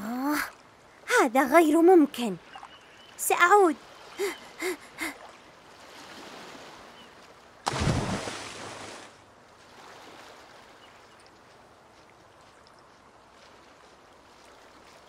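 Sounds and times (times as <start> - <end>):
gentle waves on shore: 0.0 - 15.0
body splashing into water: 7.6 - 10.5.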